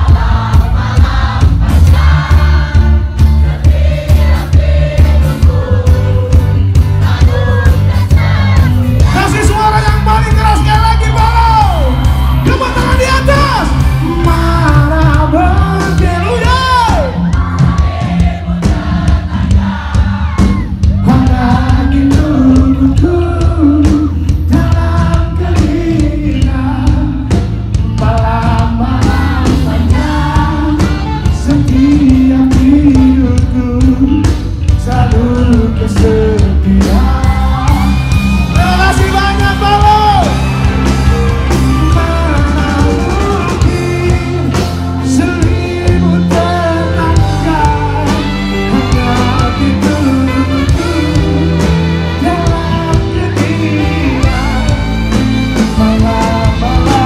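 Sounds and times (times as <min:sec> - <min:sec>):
pop-rock band playing: 0:00.0 - 0:57.0
man singing into a microphone: 0:09.0 - 0:17.2, 0:20.9 - 0:40.4, 0:41.6 - 0:55.0, 0:55.6 - 0:57.0.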